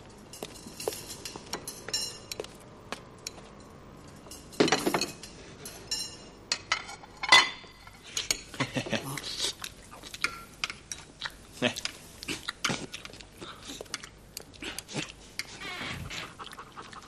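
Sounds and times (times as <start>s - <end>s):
cutlery and dishes clinking: 0.3s - 2.6s, 3.2s - 8.6s.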